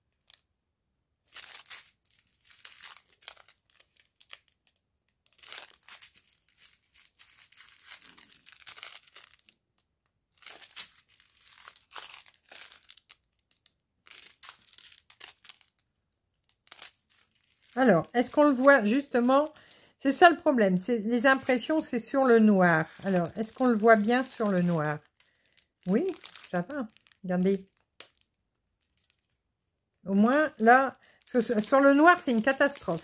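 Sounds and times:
plastic bags crinkling: 1.3s - 33.0s.

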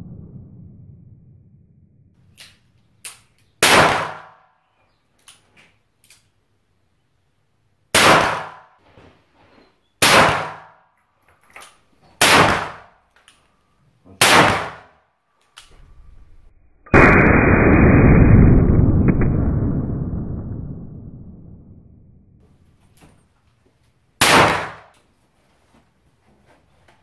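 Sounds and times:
revolver gunshots with echo: 3.6s - 4.4s, 7.9s - 8.7s, 10.0s - 10.8s, 12.2s - 12.9s, 14.2s - 15.0s, 24.2s - 24.9s.

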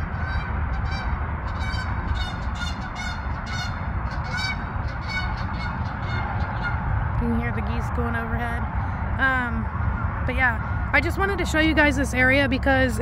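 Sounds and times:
geese honking: 0.0s - 7.2s
steady low rumble: 0.0s - 13.0s.

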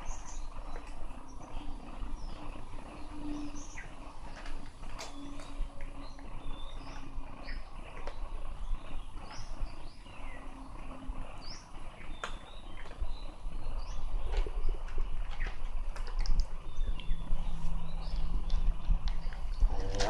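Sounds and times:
small birds chirping: 0.0s - 20.0s
steady background noise: 0.0s - 20.0s.

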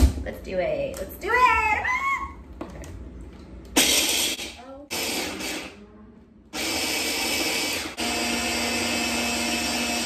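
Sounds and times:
stick blender grinding peanuts: 6.6s - 10.0s.

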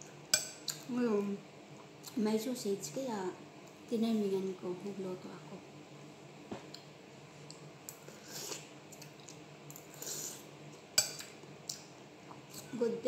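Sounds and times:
soft slurps and mouth noises: 1.8s - 2.2s, 6.7s - 12.7s.

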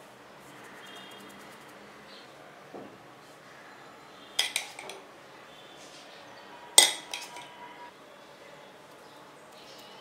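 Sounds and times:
metal spoon clinking on bowl: 4.4s - 5.0s, 6.8s - 7.6s.

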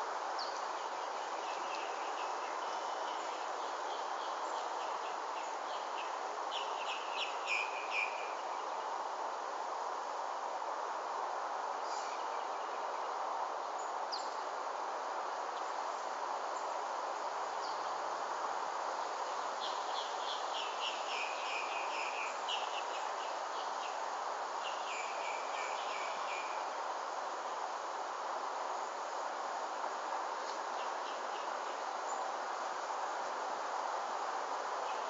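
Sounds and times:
outdoor ambient hiss: 0.0s - 35.0s
songbird chirping: 19.2s - 26.7s.

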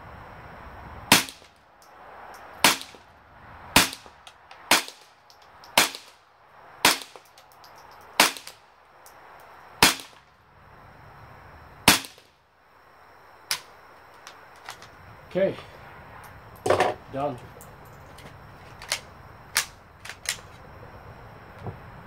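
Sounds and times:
rifle shots: 1.1s - 1.5s, 2.6s - 3.0s, 3.8s - 5.0s, 5.8s - 6.2s, 6.8s - 7.2s, 8.2s - 8.6s, 9.8s - 10.2s, 11.9s - 12.2s.

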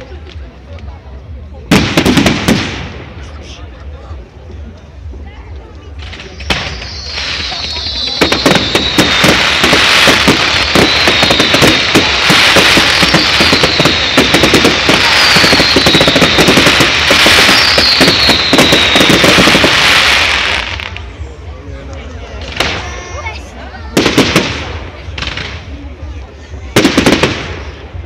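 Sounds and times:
fireworks crackling and popping: 0.0s - 3.7s, 5.5s - 28.0s
falling firework whistle: 6.1s - 20.7s.

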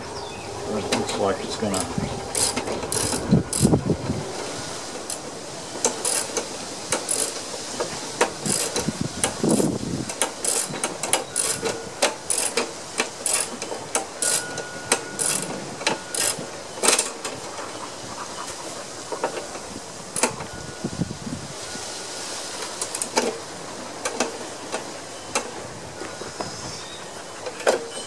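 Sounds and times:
ratchet wrench clicking: 2.3s - 3.8s, 6.0s - 7.4s, 8.4s - 14.6s, 15.2s - 15.5s, 16.1s - 17.0s.

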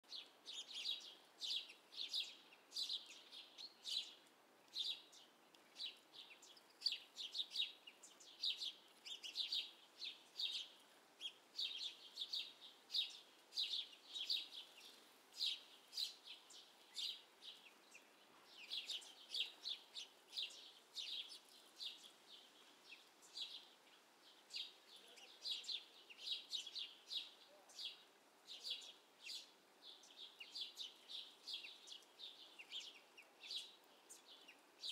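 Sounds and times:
songbirds chirping: 0.0s - 34.9s.

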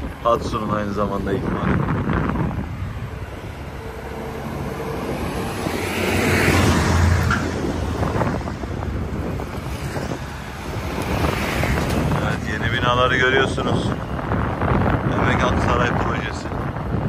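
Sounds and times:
street traffic rumble: 0.0s - 17.0s
wind noise on microphone: 0.0s - 17.0s.

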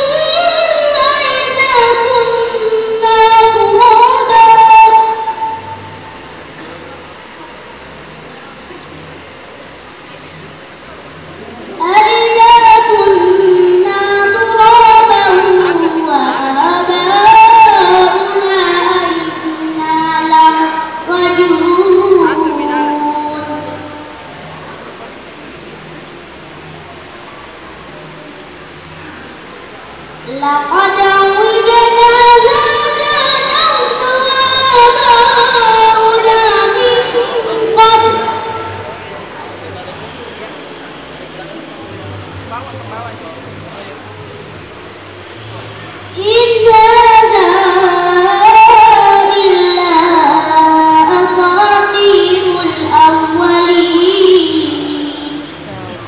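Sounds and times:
girl reciting in melodic chant: 0.0s - 5.7s, 11.7s - 24.2s, 30.2s - 38.8s, 46.1s - 55.8s.

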